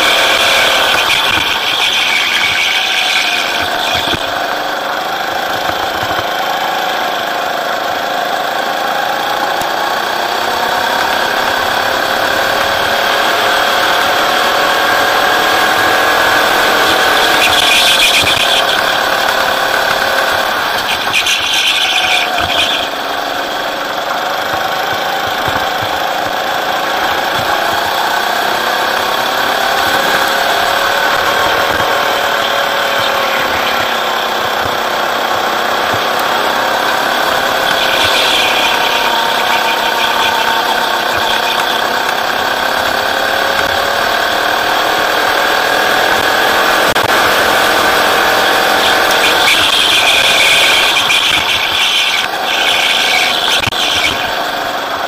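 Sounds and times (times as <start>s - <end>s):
tyre squeals: 0.0s - 4.6s, 15.4s - 23.6s, 28.9s - 43.0s, 47.8s - 55.0s
go-kart engine running hard: 0.0s - 55.0s.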